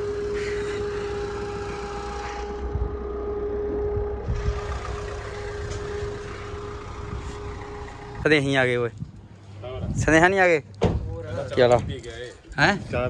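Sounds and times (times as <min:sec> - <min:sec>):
steady hum: 0:00.0 - 0:09.6
car engine running at low speed: 0:00.0 - 0:10.3.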